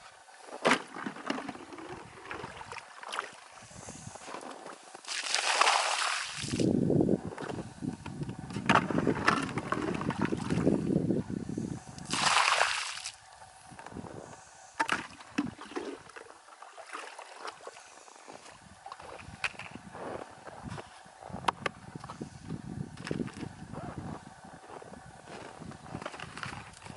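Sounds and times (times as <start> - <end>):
water splash: 5.0 - 6.7, 12.0 - 13.2
water pouring into bucket: 5.1 - 6.7, 12.0 - 13.1.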